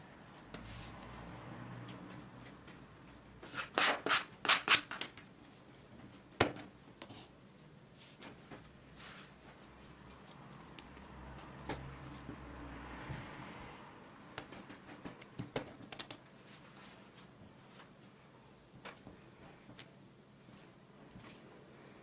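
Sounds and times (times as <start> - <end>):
dough rubbing and pressing: 0.0 - 21.6
dough slapping on wood: 6.0 - 7.3, 8.1 - 16.4.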